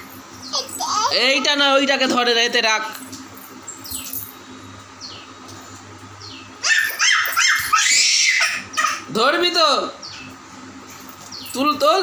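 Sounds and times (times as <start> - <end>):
dog yelping: 6.6 - 9.1.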